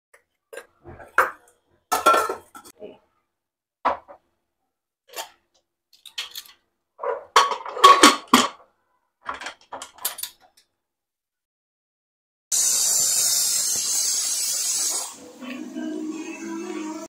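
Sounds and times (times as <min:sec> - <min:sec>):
metal pots and utensils clattering: 0:00.5 - 0:02.8, 0:05.1 - 0:05.4, 0:06.0 - 0:08.6, 0:09.2 - 0:10.5.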